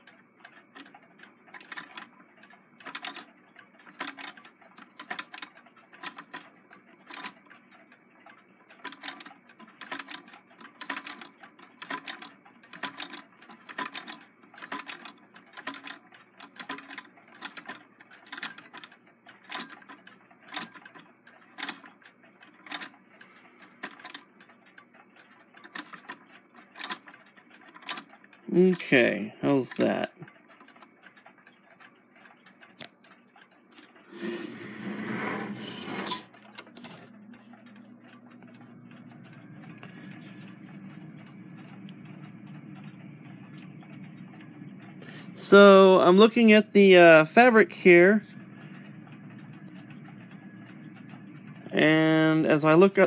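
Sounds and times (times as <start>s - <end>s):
sewing machine clicking: 0.0s - 7.7s, 8.7s - 24.5s, 25.2s - 31.3s.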